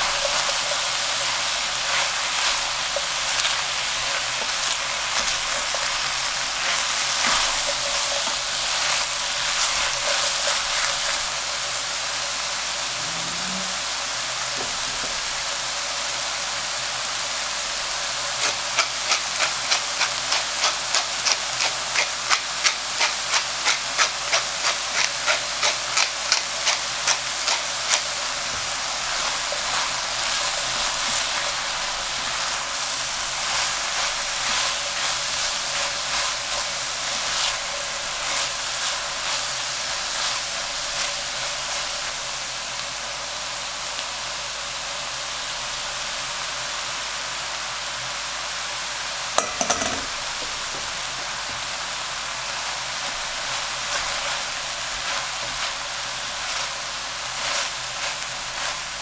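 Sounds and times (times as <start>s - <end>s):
vegetables sizzling in a pan: 0.0s - 59.0s.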